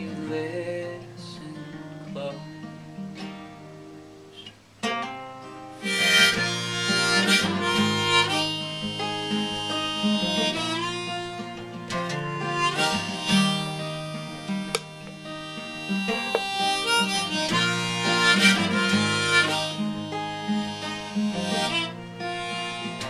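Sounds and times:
strummed acoustic guitar: 0.0 - 23.0
harmonica melody: 5.7 - 23.0.

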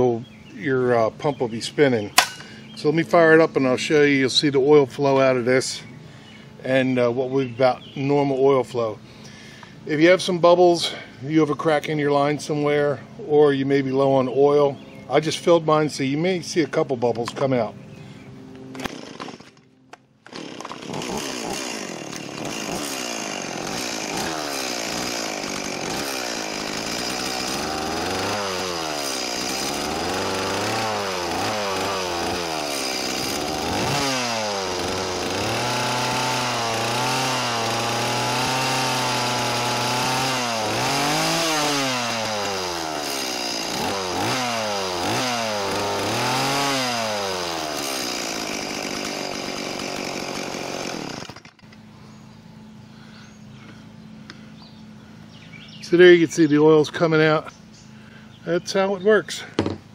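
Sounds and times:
chainsaw revving: 18.7 - 19.6, 20.2 - 51.8.

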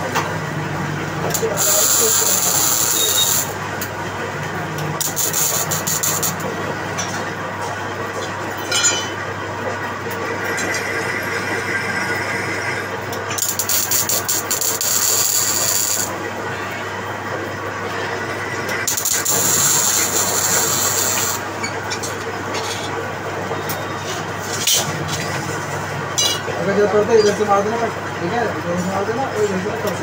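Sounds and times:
metal lathe humming: 0.0 - 7.1, 10.5 - 16.8, 18.2 - 23.9
high-pitched squealing: 1.4 - 3.6.

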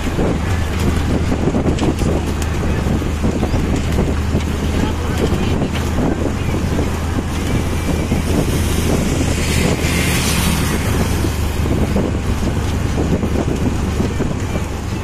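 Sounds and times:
motorcycle engine running: 0.0 - 15.0
wind on microphone: 0.0 - 15.0
motorcycle passing: 6.5 - 13.1.

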